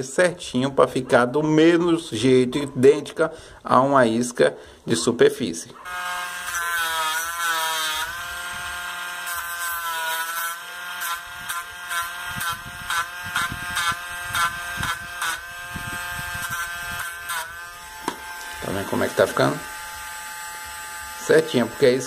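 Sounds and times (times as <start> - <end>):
rotary tool whining: 5.8 - 22.0.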